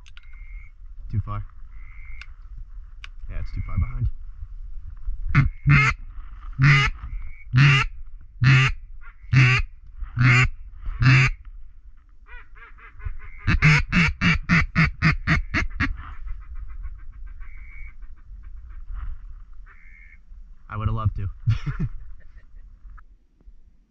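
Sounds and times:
duck call quacks: 5.3 - 6.0, 6.6 - 7.0, 7.6 - 9.6, 10.2 - 11.4, 12.3 - 16.0.

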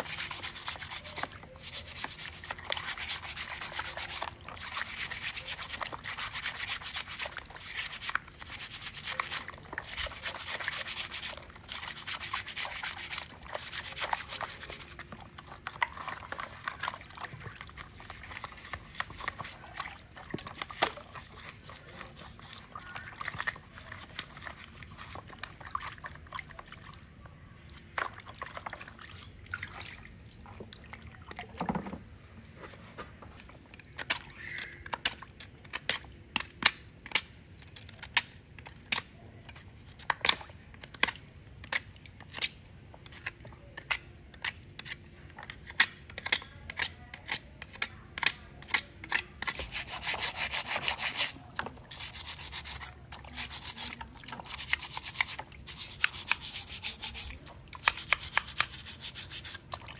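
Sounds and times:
brush scrubbing in soapy water: 0.0 - 26.2, 49.4 - 59.9
small wet knocks: 27.8 - 32.1.

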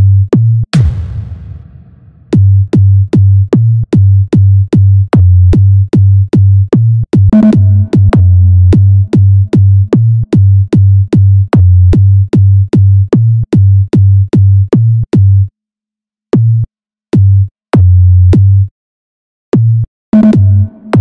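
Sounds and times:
sub-bass kicks with clicks: 0.4 - 15.4, 16.4 - 18.7
long bass pulses: 0.8 - 3.4, 7.4 - 11.0.

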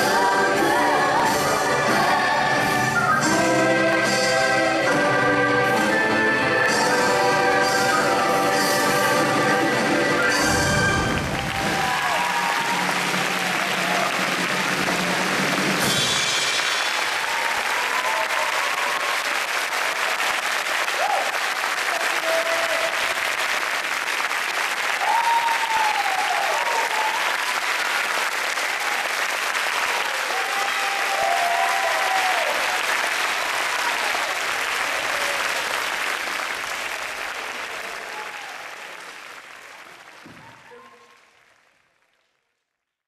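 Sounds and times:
audience applauding: 7.3 - 43.0
whoops from audience: 10.2 - 14.1, 17.1 - 19.4, 21.0 - 21.4, 25.0 - 27.7, 30.2 - 32.8, 37.8 - 38.8.

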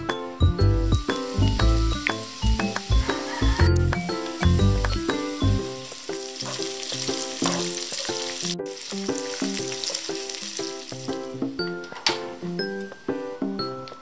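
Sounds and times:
background music: 0.0 - 14.0
ham sizzling in a pan: 0.5 - 11.6
spatula stirring: 5.9 - 11.2.

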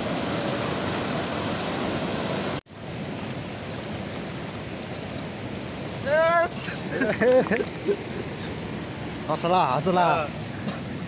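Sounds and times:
river rapids over rocks: 0.0 - 7.0.

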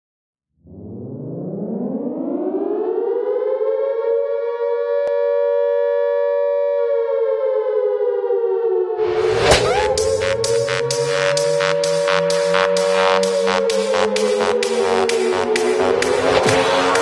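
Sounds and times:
rising synth tone: 9.0 - 17.0.

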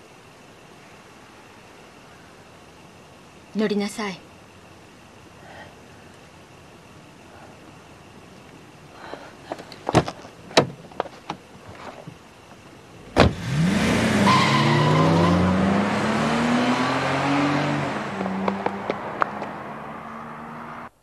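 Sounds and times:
car door slamming: 9.8 - 11.4, 13.1 - 13.4
car door clicks and knocks: 9.8 - 11.5
car engine revving: 13.0 - 21.0.

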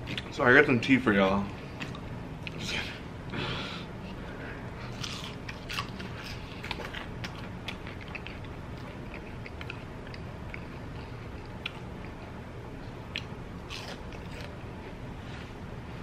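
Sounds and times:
crunchy chewing: 4.7 - 15.0.

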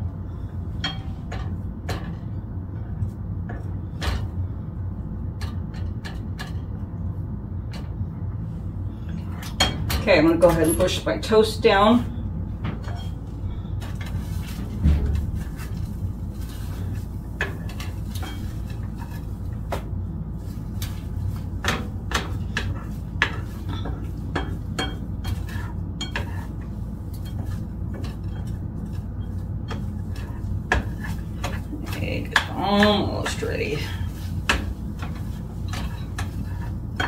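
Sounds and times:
steady low hum: 0.0 - 37.0
spatula scraping skillet: 15.4 - 19.8, 20.4 - 37.0.

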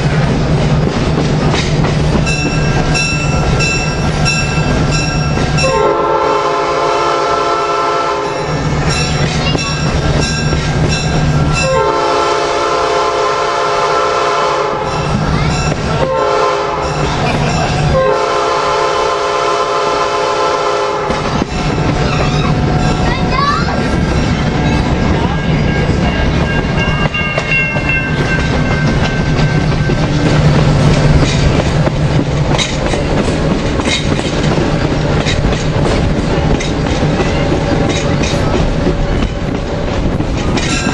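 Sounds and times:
wheels clacking over rail joints: 0.0 - 5.8, 8.4 - 12.0, 21.0 - 40.9
train coach rumbling: 0.0 - 40.9
locomotive air horn: 5.6 - 8.5, 11.6 - 15.0, 16.0 - 17.0, 17.9 - 21.2.

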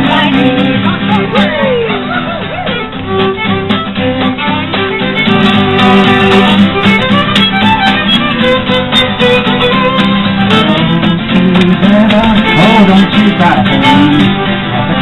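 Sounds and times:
acoustic guitar: 0.0 - 15.0
fiddle melody: 0.0 - 15.0.

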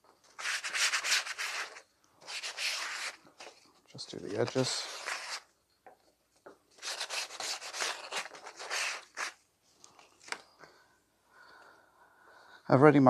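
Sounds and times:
sandpaper scratching card: 0.4 - 3.5, 4.2 - 5.5, 6.8 - 9.4.

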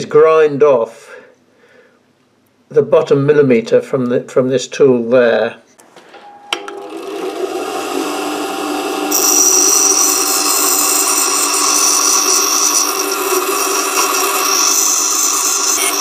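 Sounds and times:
grinder motor hum: 6.5 - 16.0
tool grinding hiss: 6.9 - 16.0.

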